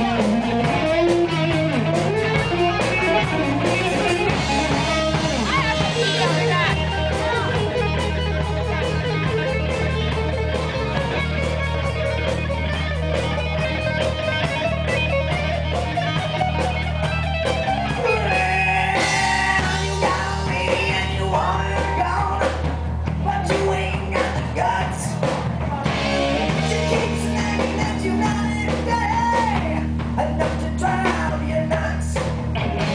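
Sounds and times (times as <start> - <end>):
rock band playing: 0.0 - 32.9
man singing: 18.0 - 32.4.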